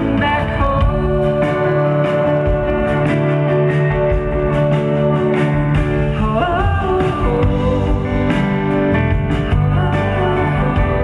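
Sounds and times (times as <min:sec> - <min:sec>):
live band playing upbeat song: 0:00.0 - 0:11.0.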